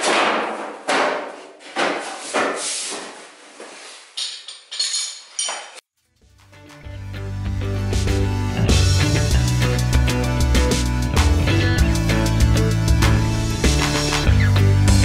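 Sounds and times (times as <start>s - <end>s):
music: 6.0s - 15.0s.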